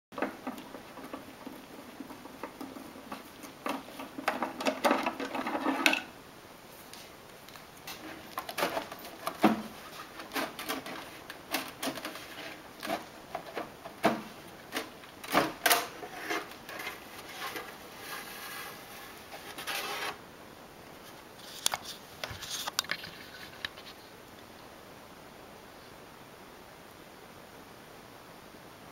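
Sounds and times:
plastic rubbing noise: 0.2s - 6.1s, 7.8s - 20.2s, 21.0s - 24.1s.

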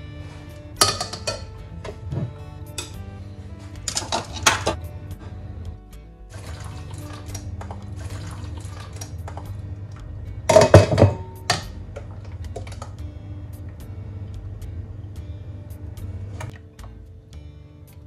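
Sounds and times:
liquid pouring through sieve: 6.3s - 9.6s.

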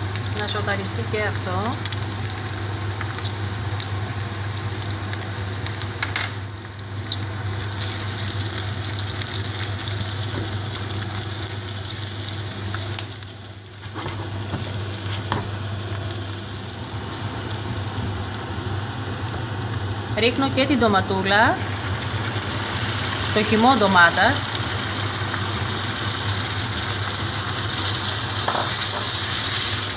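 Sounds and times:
vegetables sizzling in a pan: 0.0s - 29.9s.

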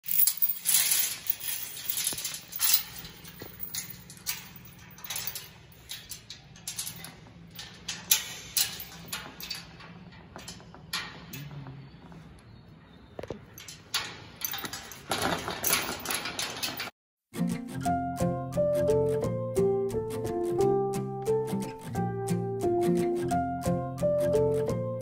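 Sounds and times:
rustling while walking: 0.1s - 7.9s.

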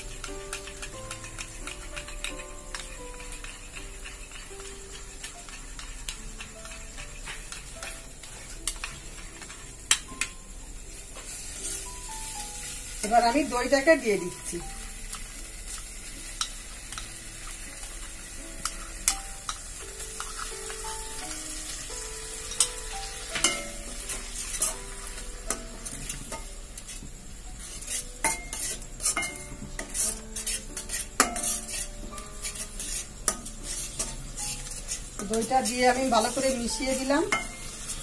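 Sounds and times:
paste sizzling in pan: 0.0s - 38.0s
metal spatula scraping pan: 0.1s - 9.6s, 23.4s - 27.0s, 27.6s - 38.0s.

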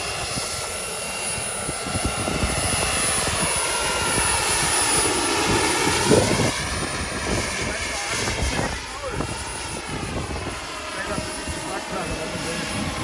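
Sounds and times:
model helicopter turbine whine: 0.0s - 13.0s.

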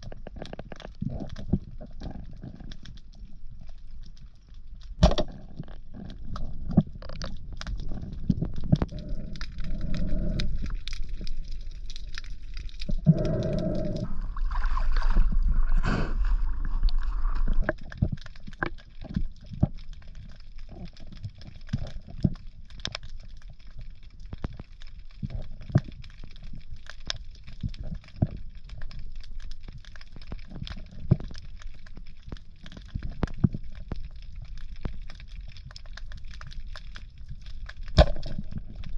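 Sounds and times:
low underwater rumble: 0.0s - 38.9s
underwater clicks and crackles: 0.0s - 38.9s
gurgling water rush: 13.1s - 17.5s.

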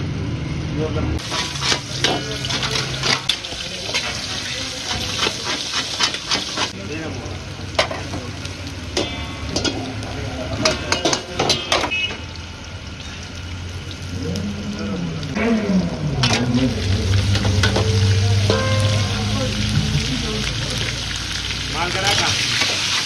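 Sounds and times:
metal spatula scraping a wok: 1.2s - 6.8s
meat sizzling in hot oil: 1.2s - 23.0s.

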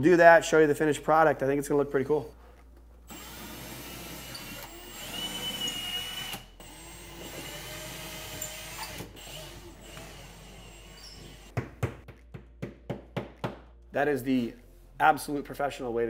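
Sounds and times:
cordless drill whining: 3.1s - 11.5s.

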